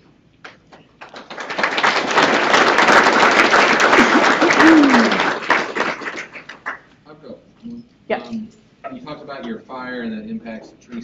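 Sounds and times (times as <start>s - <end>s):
audience applauding: 0.4s - 6.9s.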